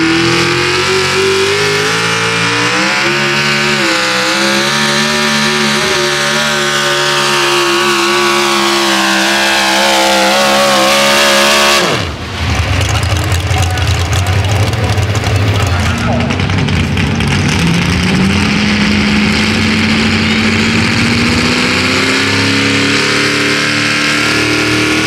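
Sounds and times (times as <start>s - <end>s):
truck engine revving high: 0.0s - 25.0s
engine low rough rumble: 12.0s - 23.3s.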